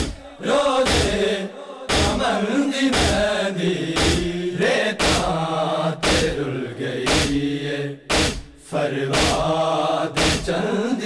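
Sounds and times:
chest beating slaps: 0.0s - 0.2s, 0.8s - 1.3s, 1.9s - 2.3s, 2.9s - 3.3s, 4.0s - 4.4s, 5.0s - 5.4s, 6.0s - 6.4s, 7.1s - 7.5s, 8.1s - 9.6s, 10.2s - 10.5s
men chanting: 0.0s - 11.0s.

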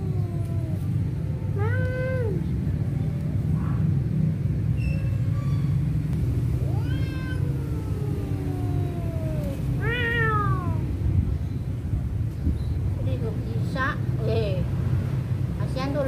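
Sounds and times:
cats yowling: 0.0s - 2.4s, 6.4s - 11.0s
steady low rumble: 0.0s - 16.0s.

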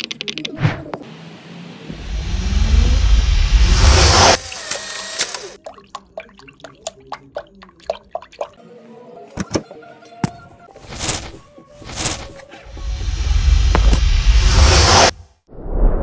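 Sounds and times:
water dripping into drain: 5.6s - 8.6s.

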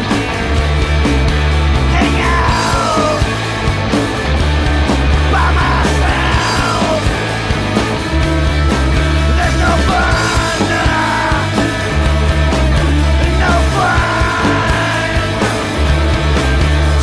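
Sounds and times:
punk rock band playing: 0.0s - 17.0s
man singing: 1.8s - 3.4s, 5.2s - 7.2s, 9.2s - 11.8s, 13.2s - 15.6s.

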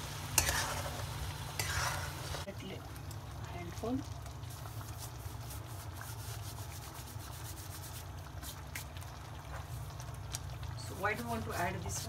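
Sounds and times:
dry leaves rubbed between palms: 4.5s - 9.0s.

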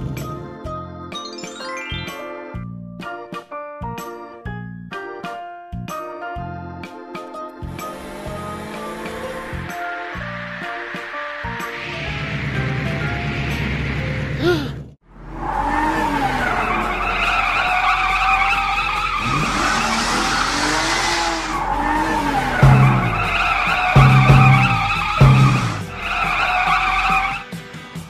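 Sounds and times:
music: 0.0s - 15.0s, 16.7s - 28.0s
cartoon tyre squeal: 15.4s - 27.5s
thumps: 18.9s - 27.2s.

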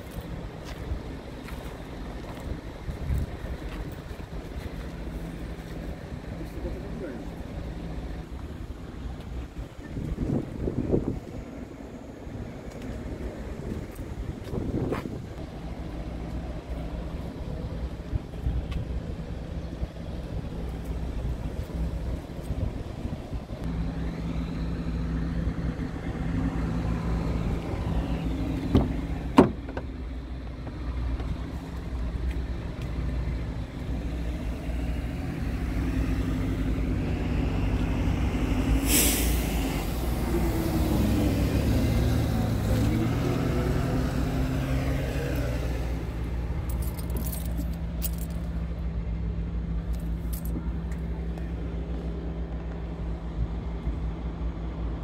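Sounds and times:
diesel engine idling: 0.0s - 55.0s
burst of hissing air: 38.8s - 39.7s.

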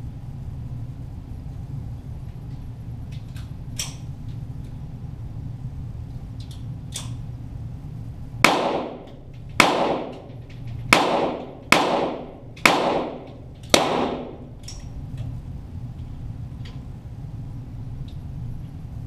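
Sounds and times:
pistol shots with echo: 8.4s - 10.3s, 10.9s - 14.6s.

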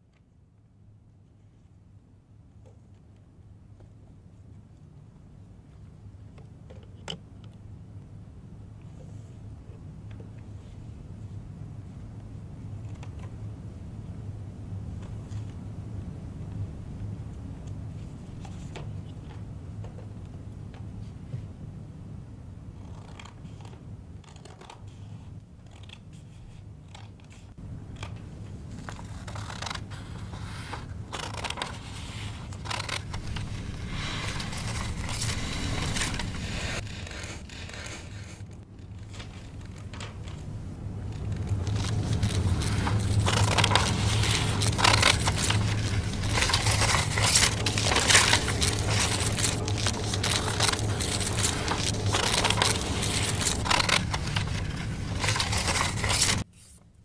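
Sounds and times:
paper rustling and crinkling: 22.8s - 56.8s
scissors snipping paper: 41.4s - 56.4s.

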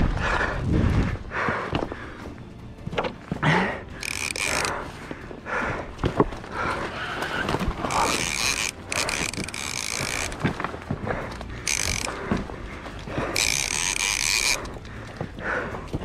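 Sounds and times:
fishing reel drag buzzing: 4.0s - 4.8s, 7.3s - 10.4s, 11.6s - 12.3s, 13.2s - 14.8s.

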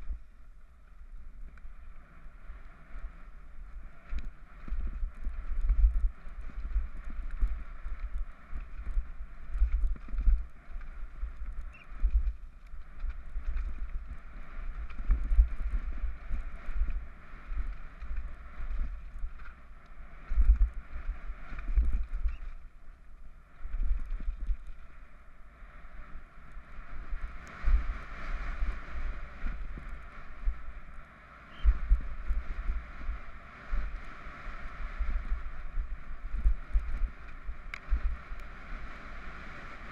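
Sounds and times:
wind buffeting microphone: 0.0s - 0.5s, 1.1s - 39.9s
bike rattling over rocks: 4.2s - 22.7s.

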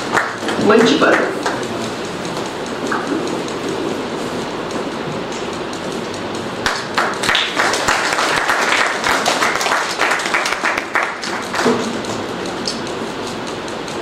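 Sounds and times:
audience applauding: 0.0s - 1.7s, 6.6s - 12.0s.

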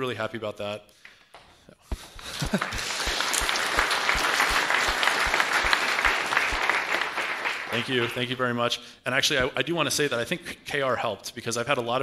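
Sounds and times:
audience applauding: 2.2s - 8.3s.

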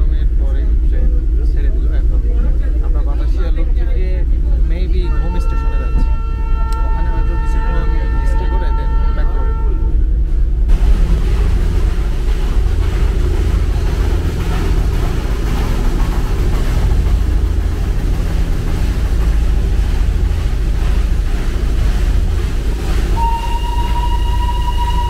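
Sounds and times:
toy train rumbling: 10.5s - 25.0s
steady high tone: 21.6s - 25.0s.

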